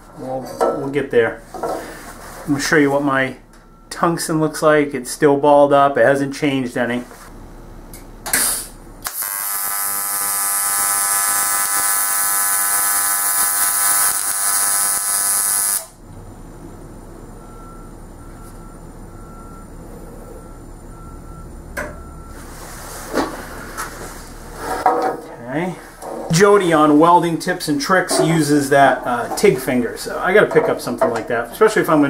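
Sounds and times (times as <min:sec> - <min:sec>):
welding arc buzzing: 0:08.3 - 0:16.0
quiet steady hum: 0:15.9 - 0:32.0.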